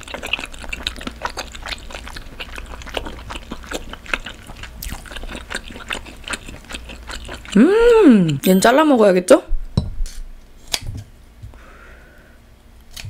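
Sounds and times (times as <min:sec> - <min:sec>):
wet chewing and mouth smacking: 0:00.0 - 0:08.8.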